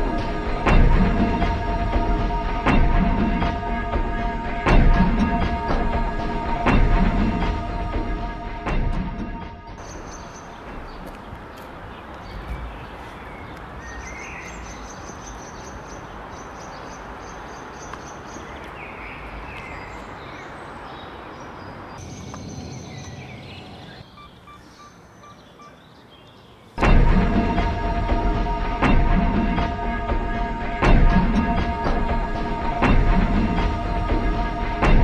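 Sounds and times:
faint bird chirps: 9.8s - 26.8s.

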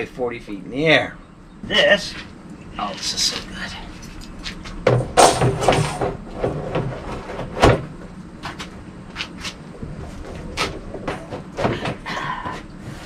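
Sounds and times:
steel frame knocking and clattering: 4.8s - 8.0s.

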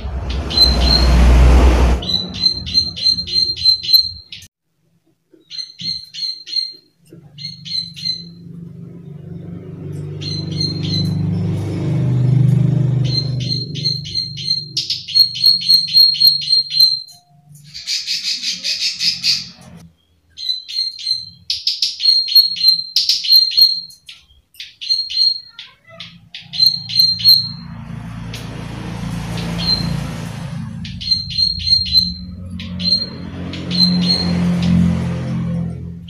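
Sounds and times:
low hum: 0.0s - 4.2s, 27.1s - 36.0s
bird calling sharp high notes: 0.0s - 4.5s, 29.2s - 34.9s.

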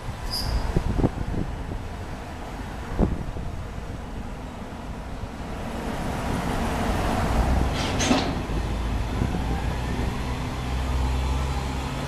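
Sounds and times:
wind noise: 0.0s - 4.3s, 6.1s - 10.5s
tractor engine and tyres rumbling: 0.0s - 12.0s
high-pitched squeak: 0.3s - 0.7s.

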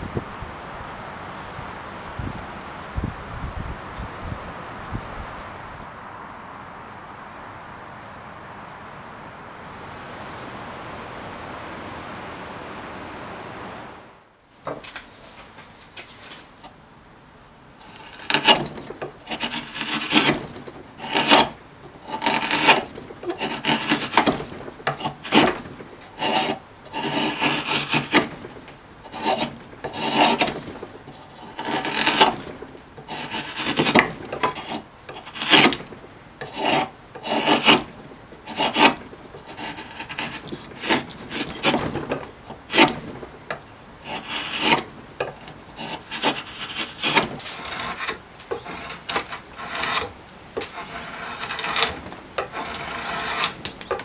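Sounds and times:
steady background hiss: 0.0s - 54.0s
drawknife shaving wood: 17.8s - 54.0s.

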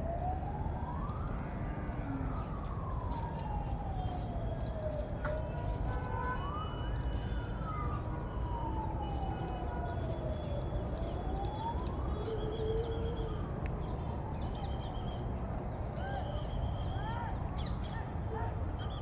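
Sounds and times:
siren wailing: 0.0s - 15.4s.

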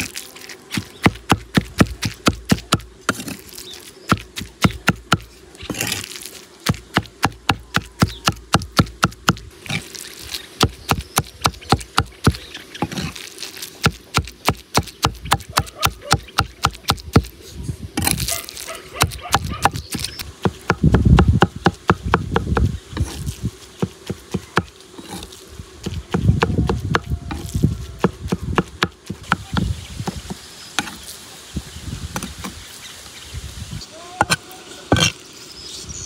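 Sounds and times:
cleaver chopping on wood: 0.7s - 3.4s, 4.1s - 6.0s, 6.6s - 9.8s, 10.6s - 13.1s, 13.8s - 17.3s, 19.0s - 23.1s, 23.8s - 25.2s, 25.8s - 31.0s.

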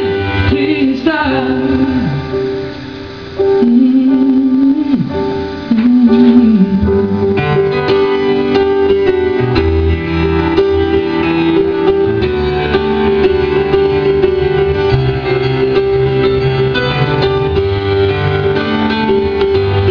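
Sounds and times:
pop ballad on piano: 0.0s - 19.9s
man singing: 0.5s - 2.3s.

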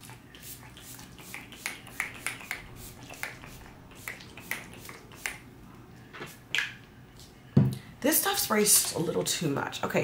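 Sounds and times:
spray bottle hissing puffs: 0.4s - 5.4s.

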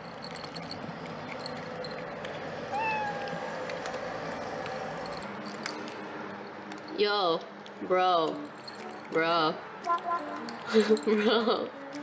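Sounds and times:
cat meow: 2.7s - 3.5s.

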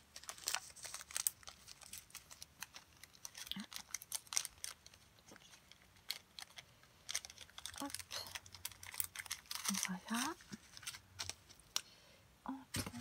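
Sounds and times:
plastic bags clicking and crinkling: 0.0s - 11.9s.

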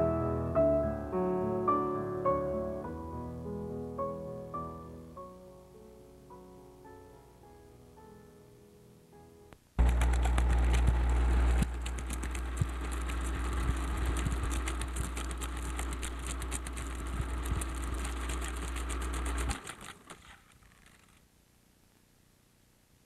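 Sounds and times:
electrical hum: 9.6s - 23.0s
rapid crackling clicks: 9.8s - 21.2s.

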